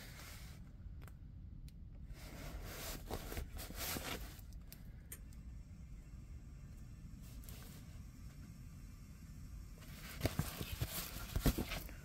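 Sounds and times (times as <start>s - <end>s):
canvas rustling: 2.2s - 4.4s, 9.8s - 12.0s.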